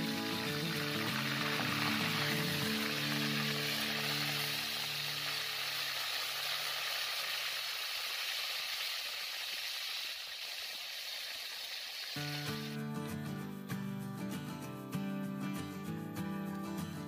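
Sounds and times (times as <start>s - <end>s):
food sizzling in hot oil: 0.0s - 12.8s.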